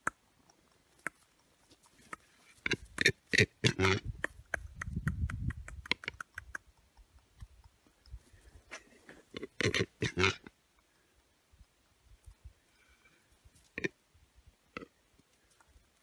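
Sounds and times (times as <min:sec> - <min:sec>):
bird clacks: 0:04.1 - 0:07.3.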